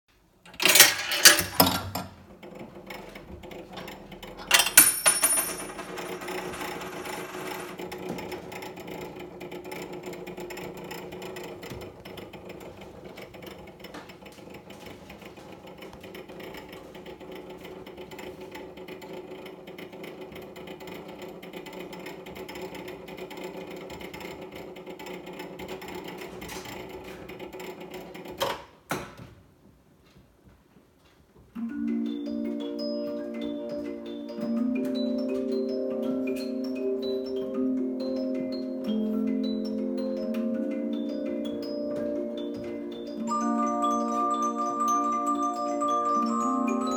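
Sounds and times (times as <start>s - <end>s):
music box mechanism clunks: 0.5s - 7.8s.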